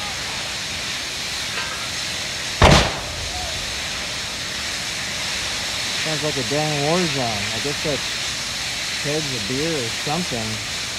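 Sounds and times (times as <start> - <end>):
fire roaring and hissing: 0.0 - 10.9
loud bang: 2.6 - 4.1.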